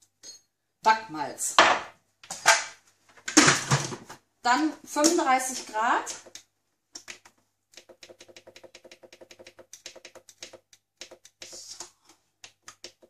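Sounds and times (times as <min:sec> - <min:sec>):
rapid clicking beeps: 0:07.8 - 0:11.6.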